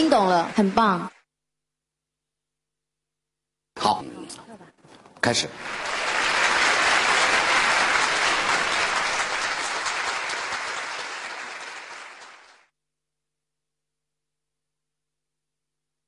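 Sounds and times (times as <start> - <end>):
audience applauding: 0.0 - 1.1, 5.2 - 12.7.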